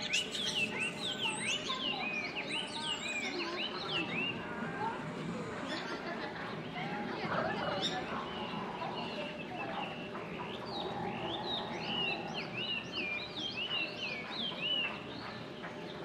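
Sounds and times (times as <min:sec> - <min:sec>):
songbird chirping: 0:00.0 - 0:04.5
outdoor background noise: 0:00.0 - 0:16.0.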